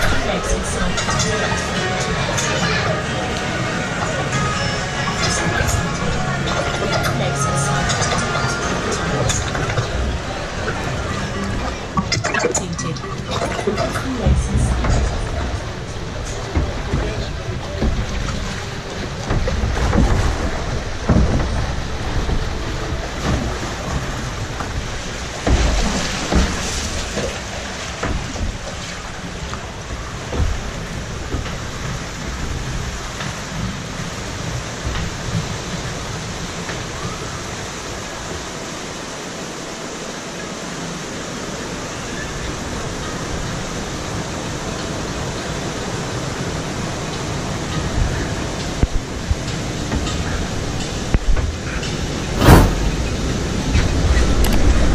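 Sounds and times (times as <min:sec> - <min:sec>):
water rushing and splashing: 0:00.0 - 0:54.9
boat knocking against channel: 0:13.4 - 0:35.7.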